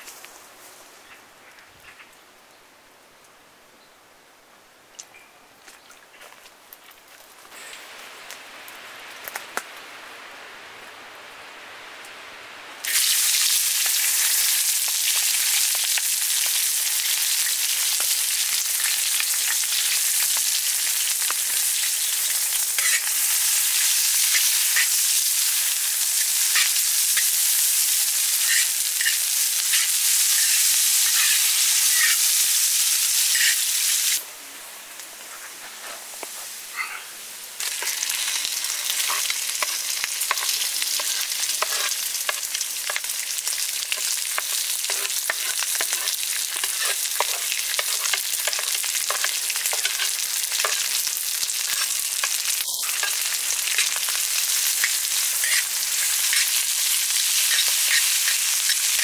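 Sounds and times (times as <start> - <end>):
onions sizzling in hot oil: 12.8 - 34.2, 37.2 - 59.0.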